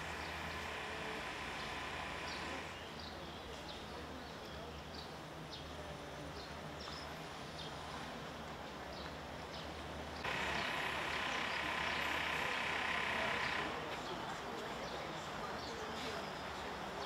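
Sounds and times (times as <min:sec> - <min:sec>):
birds chirping: 0:00.0 - 0:07.9, 0:08.8 - 0:17.0
hissing drone: 0:10.3 - 0:13.8.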